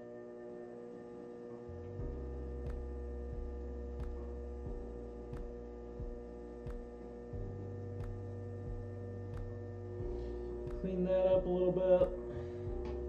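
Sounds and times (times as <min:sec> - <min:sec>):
potter's wheel motor hum: 0:00.0 - 0:13.0.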